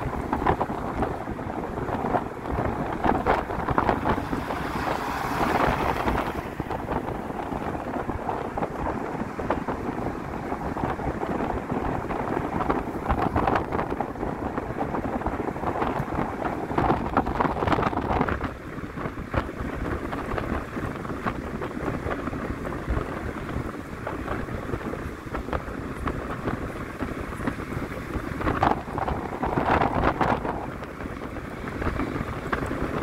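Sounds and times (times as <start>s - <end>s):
bus engine: 0.0s - 33.0s
road noise: 0.0s - 33.0s
wind buffeting side window: 0.0s - 33.0s.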